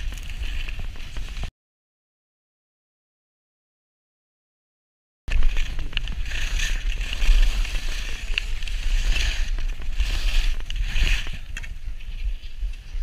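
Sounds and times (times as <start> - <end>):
low wind rumble: 0.0 - 1.5, 5.3 - 13.0
skis scraping over snow: 0.0 - 1.5, 5.3 - 13.0.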